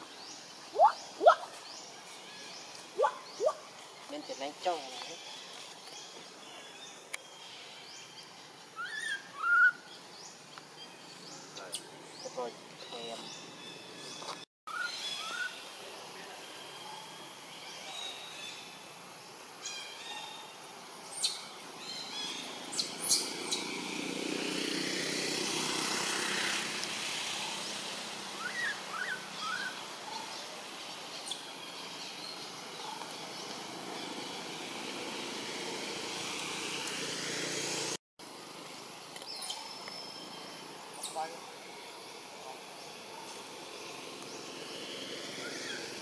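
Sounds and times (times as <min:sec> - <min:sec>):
steady outdoor hiss: 0:00.0 - 0:46.0
bird chirps: 0:00.7 - 0:06.0.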